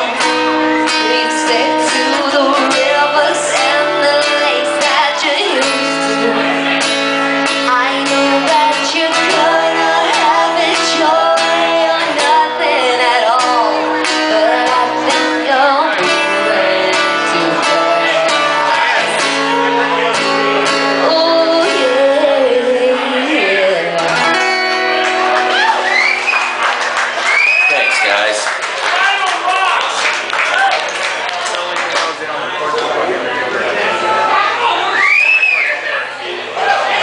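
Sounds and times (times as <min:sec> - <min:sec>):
acoustic guitar: 0:00.0 - 0:28.4
woman singing: 0:00.8 - 0:06.6, 0:07.6 - 0:19.5, 0:20.9 - 0:24.7.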